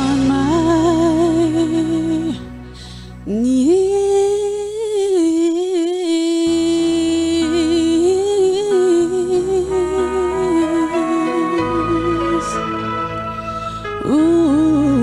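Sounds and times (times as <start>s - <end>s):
soft backing chords: 0.0s - 15.0s
woman singing wordless note: 3.2s - 15.0s.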